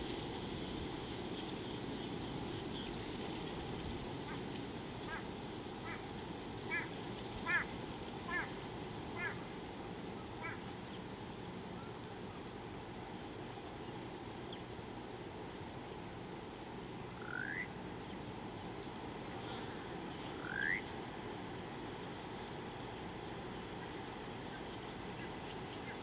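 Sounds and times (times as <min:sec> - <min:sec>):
goose calling: 0:05.1 - 0:06.0, 0:06.7 - 0:07.7, 0:08.3 - 0:08.6, 0:09.2 - 0:09.4, 0:10.4 - 0:10.6, 0:17.2 - 0:17.7.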